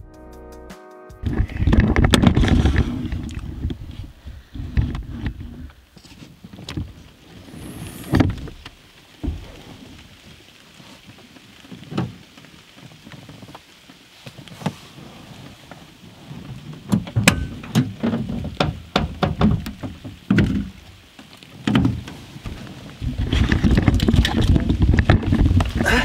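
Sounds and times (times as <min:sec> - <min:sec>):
knocks and handling noises: 0:01.2 - 0:07.1, 0:16.8 - 0:25.9
rain tapping on camper shell: 0:01.3 - 0:26.0.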